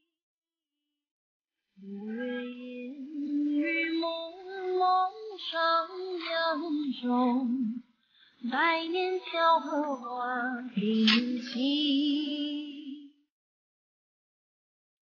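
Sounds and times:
woman singing: 1.8s - 13.2s.

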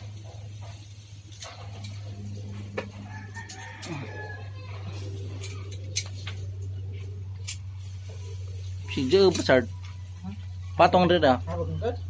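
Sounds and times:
steady low hum: 0.0s - 12.0s
metal tongs clicking on grill: 0.6s - 2.1s, 5.0s - 6.4s, 7.4s - 7.9s.

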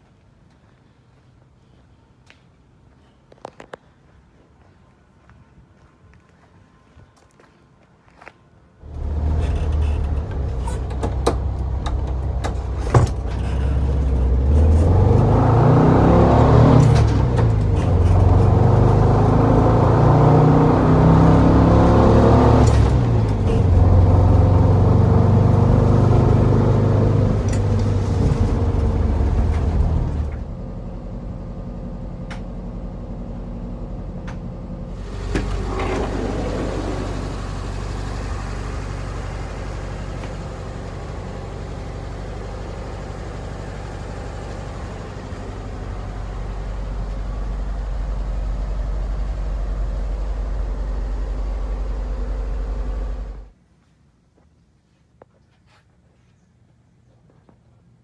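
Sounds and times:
van engine running: 8.8s - 53.6s.

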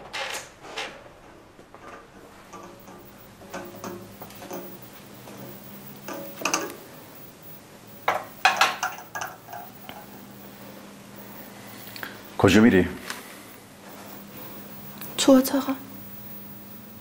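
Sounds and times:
glass and metal tray clinking: 8.1s - 10.1s.

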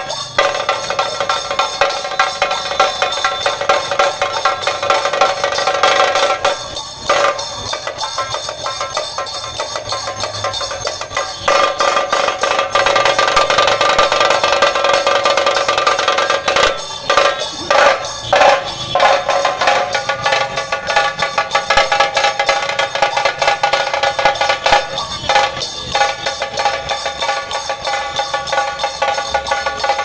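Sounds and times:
group drumming: 0.0s - 30.0s.

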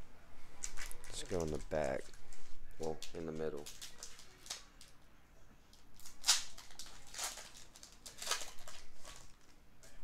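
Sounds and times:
card pack crinkling: 0.6s - 2.2s, 2.8s - 4.9s, 6.0s - 9.6s.

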